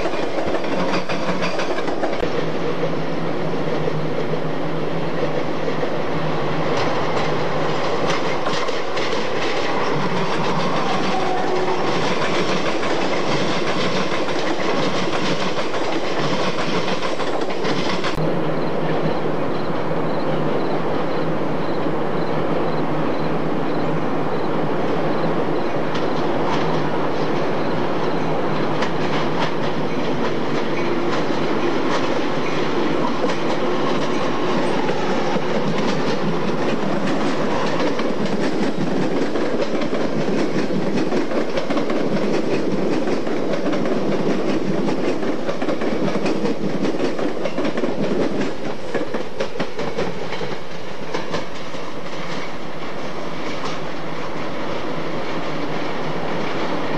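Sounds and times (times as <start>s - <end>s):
wheels clicking over rail joints: 0.0s - 2.9s, 6.7s - 18.2s, 25.8s - 54.4s
train rumbling past: 0.0s - 56.9s.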